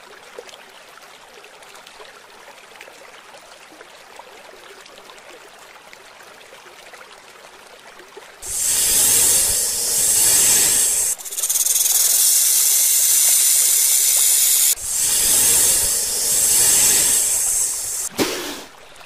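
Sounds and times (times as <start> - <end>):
snake hissing: 8.4 - 18.2.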